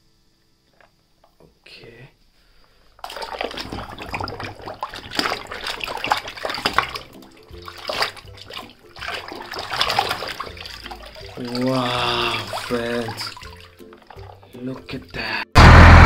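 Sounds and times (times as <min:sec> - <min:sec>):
hand splashing water: 0:03.0 - 0:15.1.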